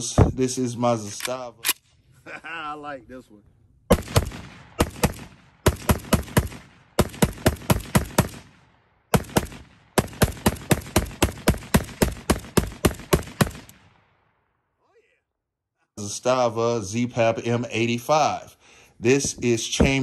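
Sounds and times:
rifle gunshots: 3.9 - 14.2.

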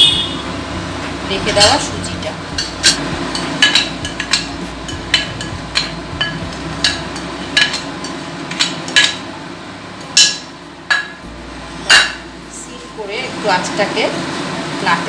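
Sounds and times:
spatula scraping and tapping pan: 2.5 - 9.3.

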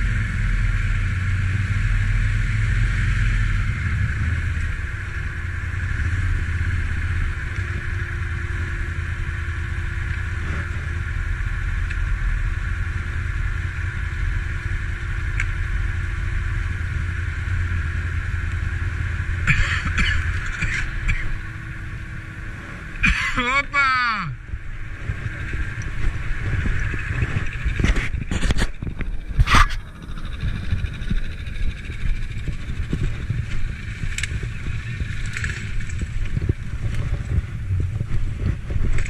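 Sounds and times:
atv engine running: 0.0 - 39.0.

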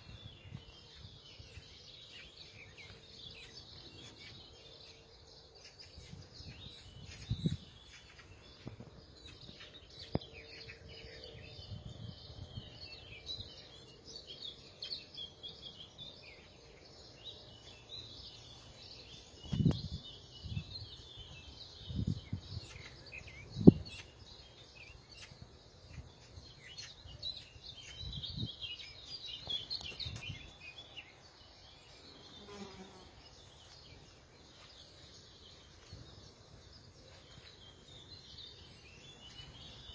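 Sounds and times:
birds chirping: 0.0 - 39.9
insect buzzing: 32.0 - 33.8.

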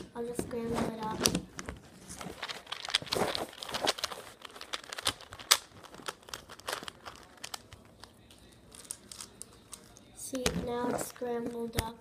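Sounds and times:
plastic puzzle clicking: 2.4 - 8.1.

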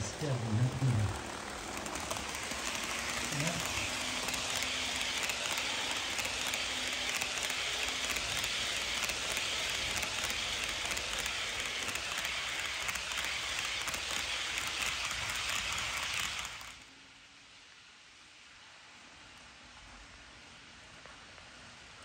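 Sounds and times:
model train wheels clattering: 0.0 - 16.9
faint locomotive motor hum: 0.0 - 22.0
clicking over rail joints: 0.7 - 16.8.

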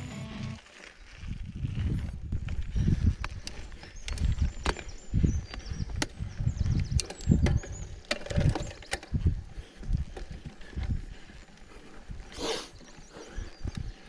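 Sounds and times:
wind gust on microphone: 1.2 - 3.4, 4.1 - 10.1
bike thumps and rattles: 4.1 - 11.0.

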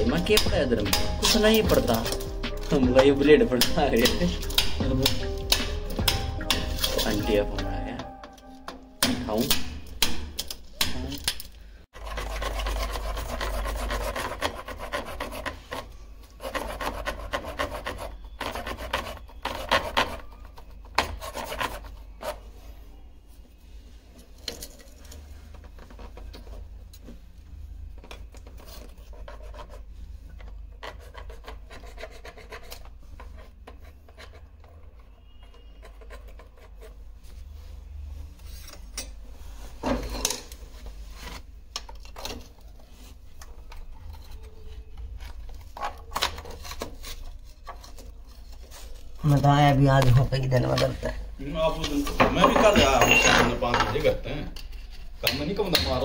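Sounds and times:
rasping and scraping on hard surface: 0.0 - 7.6, 12.0 - 22.9, 27.9 - 50.9.

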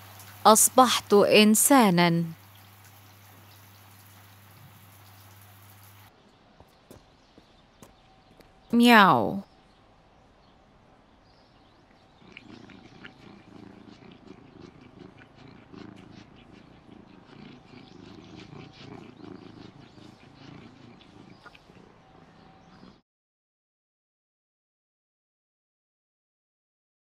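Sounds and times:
cat purring: 11.6 - 23.0.

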